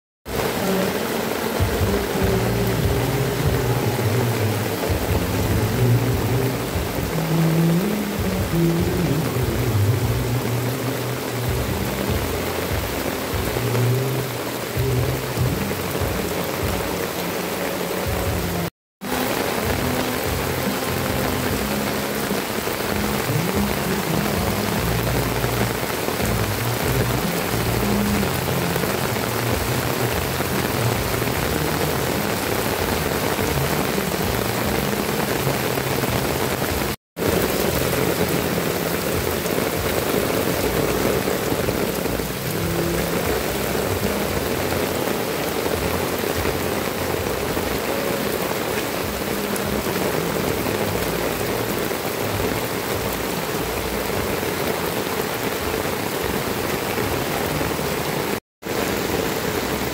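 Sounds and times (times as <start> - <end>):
heavy rain on roof tiles: 0.2 - 59.9.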